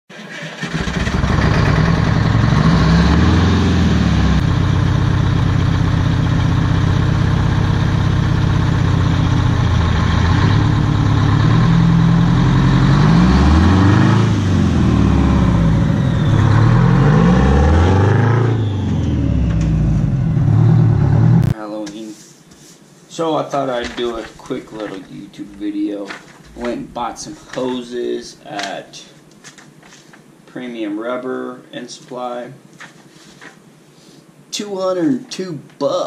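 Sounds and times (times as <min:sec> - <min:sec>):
truck diesel engine revving: 0:00.6 - 0:21.6.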